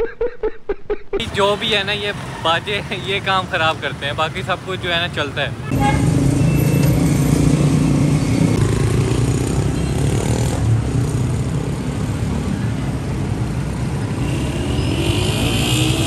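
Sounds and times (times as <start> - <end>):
motorcycle engines running: 5.8 - 12.6.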